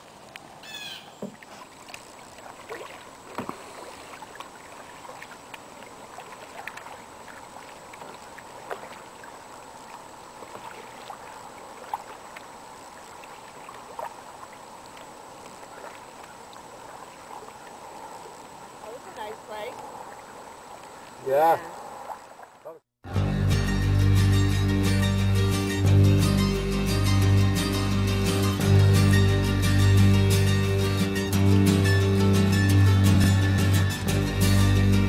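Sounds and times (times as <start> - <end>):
faint steady hiss: 0.0 - 22.8
paddle splashes and drips: 0.0 - 22.8.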